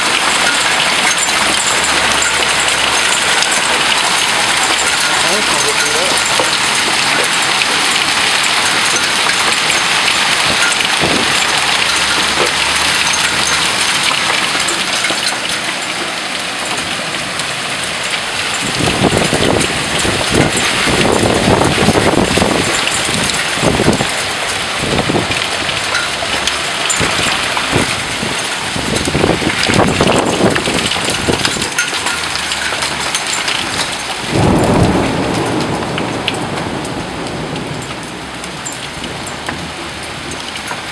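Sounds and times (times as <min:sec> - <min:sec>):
hail and heavy rain pelting: 0:00.0 - 0:40.9.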